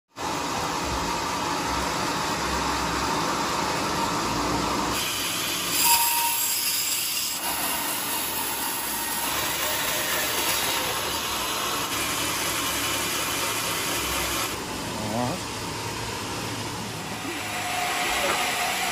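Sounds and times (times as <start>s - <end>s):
sawmill machinery running: 0.2s - 18.9s
band saw: 4.9s - 15.5s, 16.7s - 18.9s
brief high ring: 5.7s - 7.0s.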